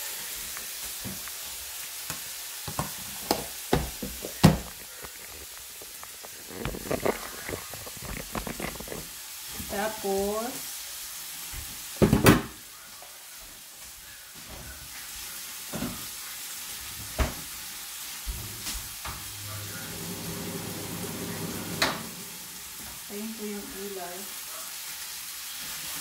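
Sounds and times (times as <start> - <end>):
beef sizzling in a pan: 0.0 - 26.0
kitchen knocks: 2.7 - 4.8, 12.0 - 12.6.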